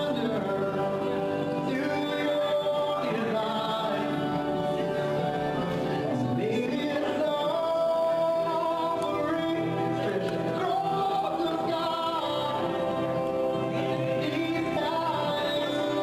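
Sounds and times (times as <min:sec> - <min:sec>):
instrumental backing: 0:00.0 - 0:16.0
person singing gospel: 0:00.0 - 0:16.0.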